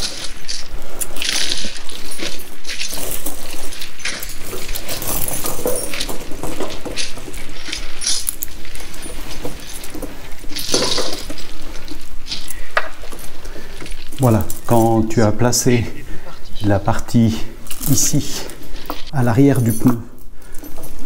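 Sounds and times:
steel chain links clinking: 0:00.0 - 0:21.0.

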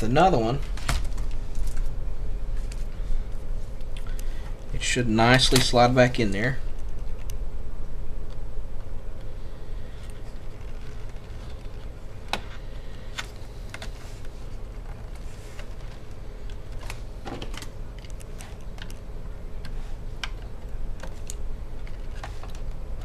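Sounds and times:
laptop keys rattling: 0:14.7 - 0:23.0.

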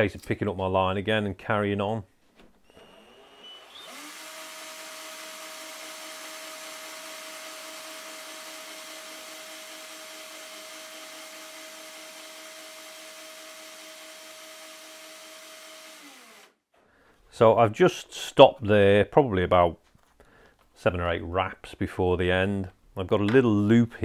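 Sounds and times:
small electric motor whining: 0:02.7 - 0:16.6.

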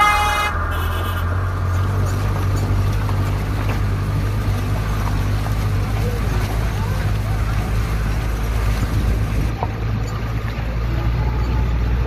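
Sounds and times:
car engine droning: 0:00.0 - 0:12.0.

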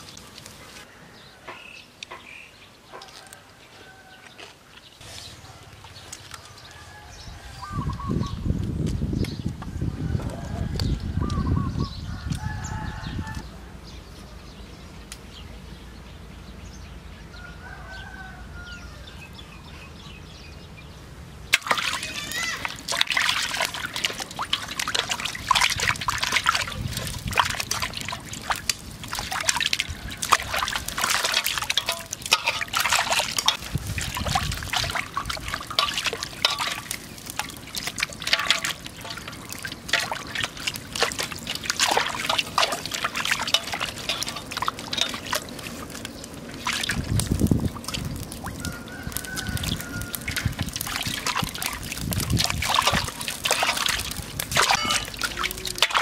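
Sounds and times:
water sloshing in metal basin: 0:21.5 - 0:56.0.

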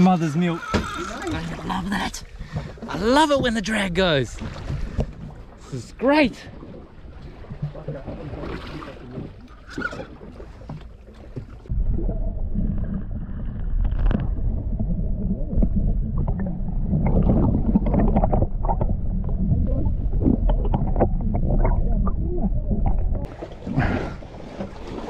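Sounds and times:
underwater crackles and clicks: 0:00.0 - 0:05.9, 0:06.5 - 0:23.6
muffled underwater rumble: 0:06.6 - 0:25.0.

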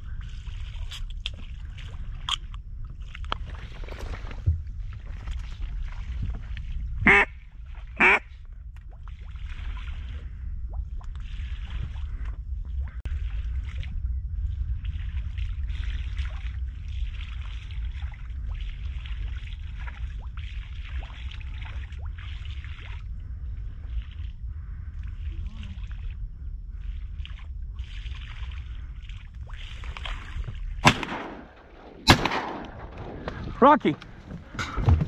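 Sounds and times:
wind rumble on microphone: 0:00.0 - 0:35.0
duck call quacks: 0:07.1 - 0:07.3, 0:08.0 - 0:08.2.

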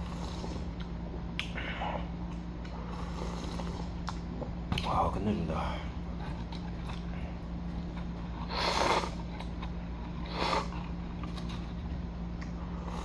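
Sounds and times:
steady low hum: 0:00.0 - 0:13.0
loud noodle slurps: 0:02.9 - 0:03.9, 0:08.4 - 0:09.5, 0:10.2 - 0:11.6.

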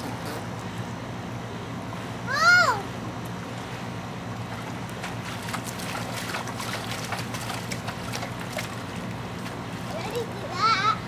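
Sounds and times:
steady low hum: 0:00.0 - 0:11.0
dog snapping at water splashes: 0:04.9 - 0:08.8.

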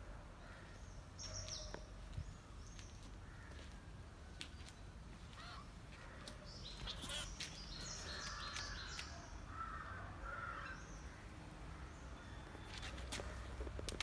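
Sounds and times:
birds chirping: 0:00.4 - 0:14.0
harsh low bird calls: 0:05.3 - 0:13.7.

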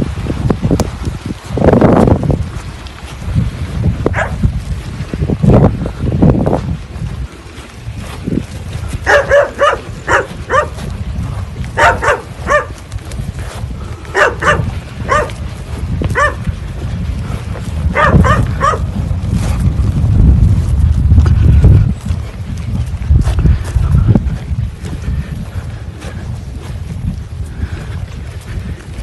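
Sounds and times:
wind rumble on microphone: 0:00.0 - 0:29.0
dog barking: 0:04.1 - 0:04.4, 0:09.0 - 0:10.8, 0:11.8 - 0:12.8, 0:14.1 - 0:15.4, 0:16.1 - 0:16.4, 0:17.9 - 0:18.9.

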